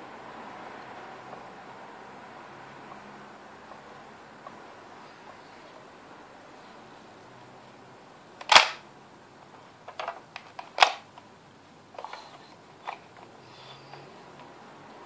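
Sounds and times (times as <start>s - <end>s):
sharp plastic snaps: 8.4s - 8.8s, 9.9s - 11.3s.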